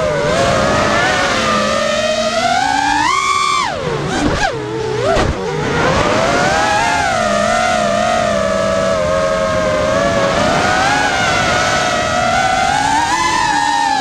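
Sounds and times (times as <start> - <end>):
quadcopter motors whining: 0.0 - 14.0.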